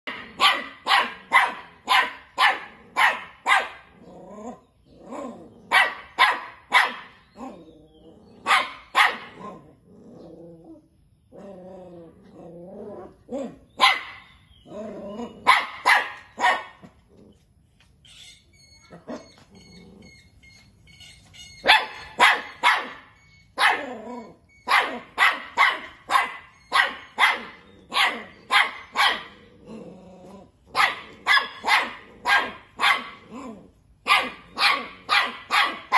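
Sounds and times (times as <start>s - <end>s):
puppies barking: 0.1s - 7.7s, 8.3s - 9.6s, 13.3s - 17.0s, 21.5s - 29.7s, 30.6s - 35.9s
puppies growling: 3.9s - 5.8s, 7.3s - 8.6s, 9.3s - 13.6s, 14.6s - 15.6s, 19.0s - 20.3s, 27.4s - 33.8s.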